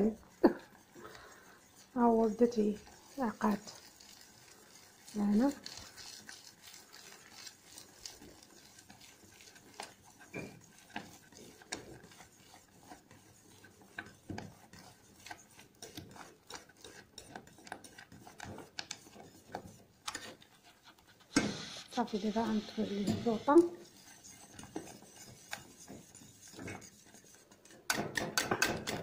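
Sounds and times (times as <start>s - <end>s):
wire whisk scraping a saucepan: 0.0s - 21.3s, 21.9s - 29.0s.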